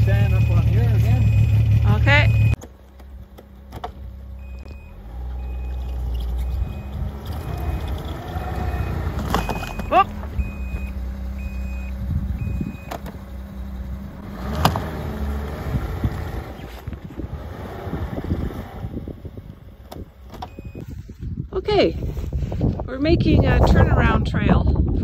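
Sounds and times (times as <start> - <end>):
reverse warning beep: 0.0 - 2.6, 4.4 - 13.0, 20.5 - 20.9
snowmobile engine under load: 0.0 - 25.0.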